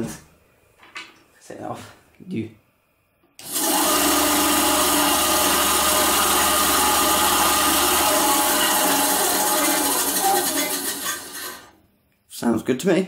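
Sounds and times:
bandsaw motor and blade running: 3.4s - 11.8s.

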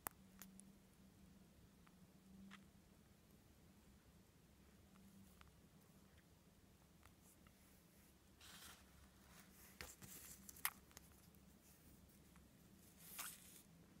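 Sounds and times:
faint rustling: 7.0s - 13.8s.

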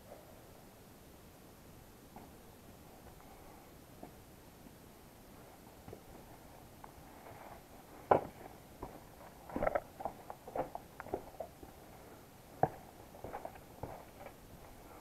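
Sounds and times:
footsteps on stones and dry leaves: 7.0s - 11.9s, 12.5s - 15.0s.

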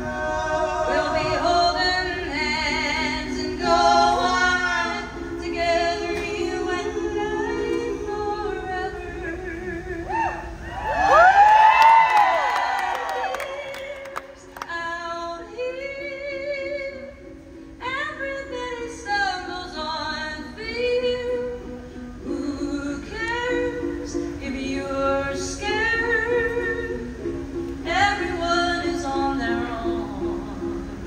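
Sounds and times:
woman singing: 0.0s - 10.4s, 13.0s - 31.0s.

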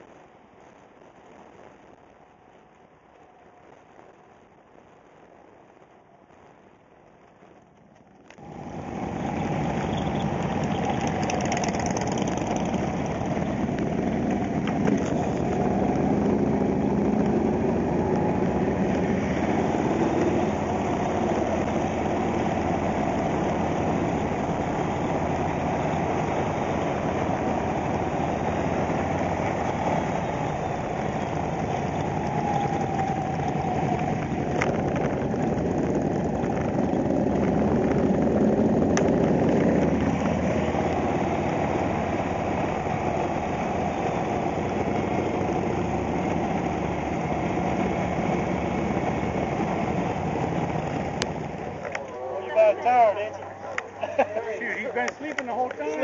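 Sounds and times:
other motorcycles: 7.5s - 56.0s
motorcycle engine running: 8.4s - 51.8s.

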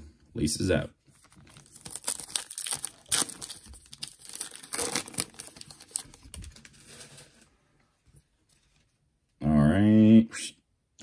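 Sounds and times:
foil wrapper crinkling: 1.2s - 7.4s
foil wrapper tearing: 1.3s - 7.2s.

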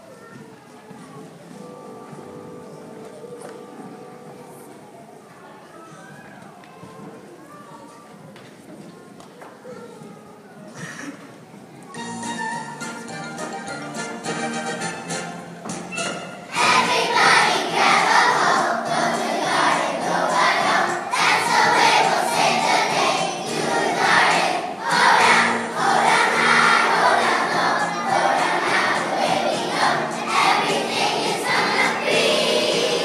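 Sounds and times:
musical accompaniment: 1.6s - 4.8s, 11.9s - 33.0s
children singing in unison: 16.5s - 33.0s.

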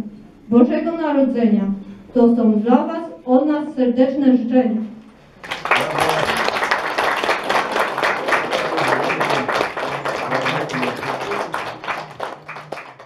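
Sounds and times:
audience applauding: 5.4s - 13.0s
voices: 5.6s - 6.8s, 7.5s - 12.9s.

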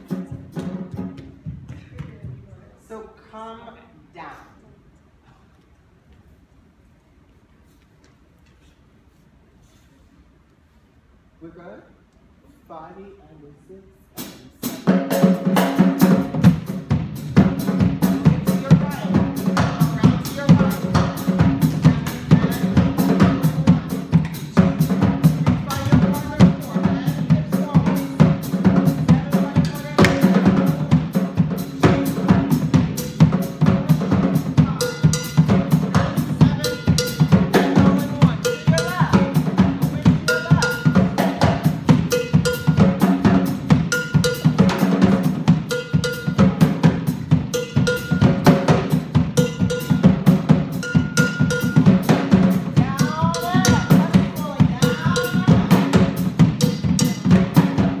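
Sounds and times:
drums playing a quick beat: 0.0s - 2.9s, 14.1s - 58.0s
high ringing tone: 45.7s - 46.7s, 47.6s - 48.6s, 50.8s - 52.1s.

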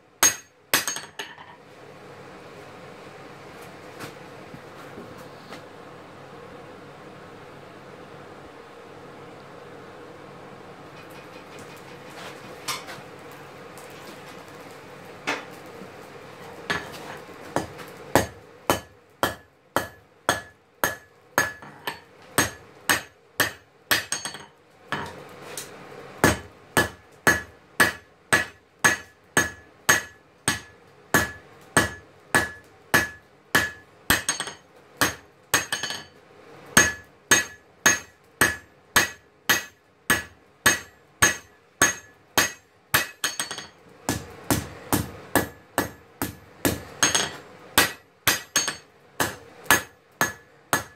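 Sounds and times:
hammer striking steel on anvil: 0.2s - 1.4s, 17.6s - 25.2s, 26.2s - 36.1s, 36.8s - 50.9s.

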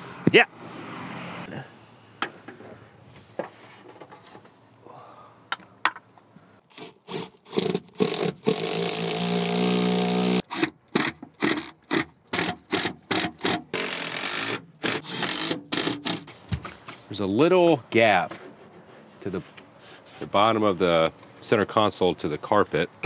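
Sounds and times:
cordless drill spinning: 6.7s - 11.6s.

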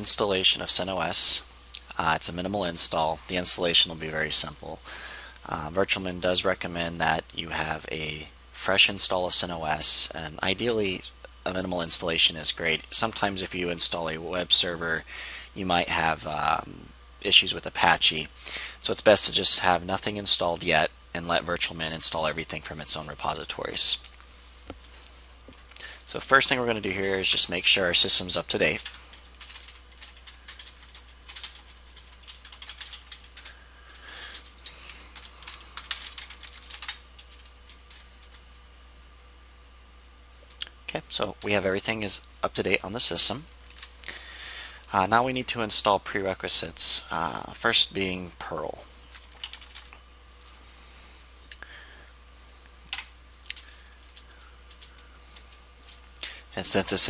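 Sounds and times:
steady low hum: 0.0s - 57.0s
computer keyboard typing: 28.6s - 38.4s, 43.6s - 43.9s, 49.1s - 50.6s, 52.9s - 56.0s.

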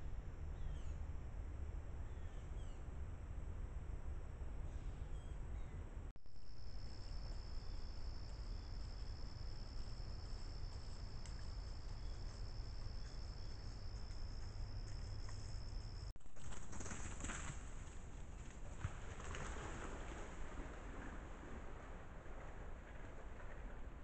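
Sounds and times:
low steady rumble: 0.0s - 24.0s
insect high-pitched trill: 6.2s - 16.1s.

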